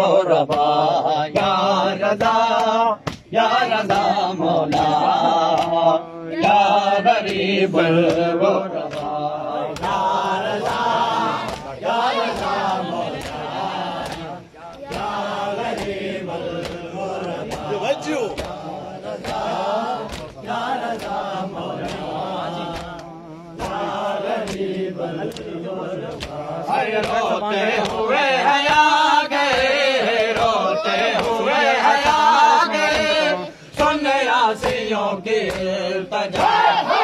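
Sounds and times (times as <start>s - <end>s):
men chanting in unison: 0.0s - 37.0s
rhythmic chest-beating slaps: 0.0s - 37.0s.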